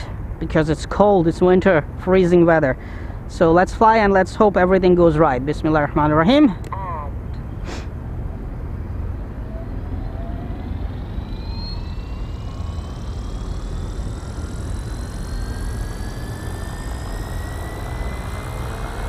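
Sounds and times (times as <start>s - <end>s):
electric motor whine rising: 7.4s - 19.0s
low rumble: 7.4s - 19.0s.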